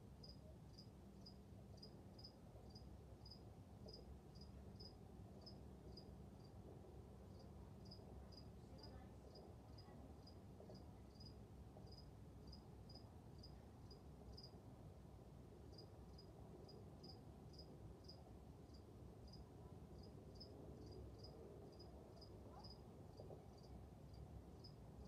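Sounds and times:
low room hum: 0:00.0 - 0:25.0
insect chirping: 0:00.2 - 0:06.5, 0:11.9 - 0:14.6, 0:15.7 - 0:19.4.

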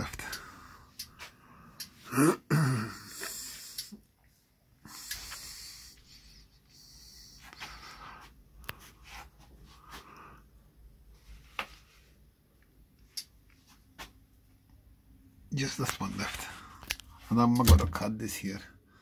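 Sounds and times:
man breathing: 0:00.2 - 0:02.1, 0:02.9 - 0:04.0, 0:04.8 - 0:10.6
man grunting: 0:02.1 - 0:03.1
small sharp clicks: 0:03.7 - 0:04.0.

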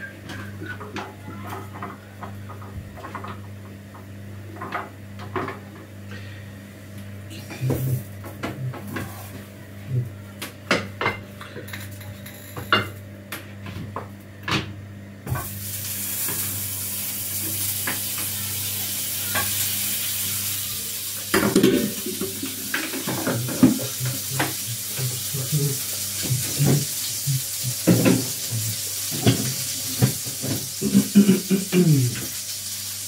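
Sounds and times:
utensils clinking on pan and plate: 0:10.8 - 0:13.0
frying pan sizzling: 0:15.3 - 0:33.0.

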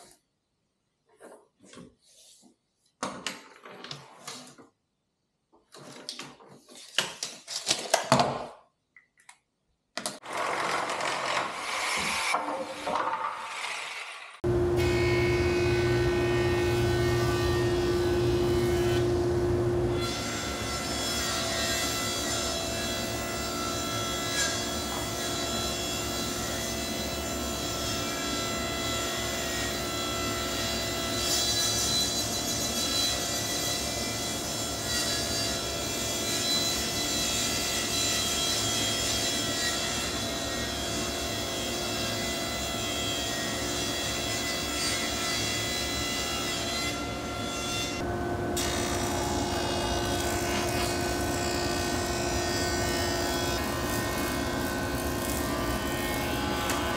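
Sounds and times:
table saw cutting wood: 0:10.2 - 0:56.9
saw motor whine: 0:14.5 - 0:20.0.

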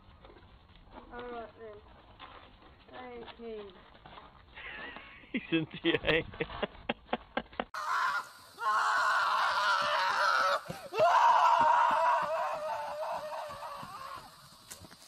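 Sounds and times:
person screaming: 0:07.8 - 0:14.4.

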